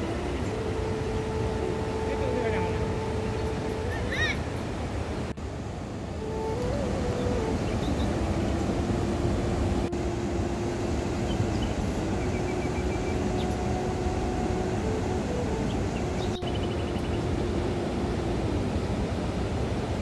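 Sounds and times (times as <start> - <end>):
rushing water: 0.0 - 20.0.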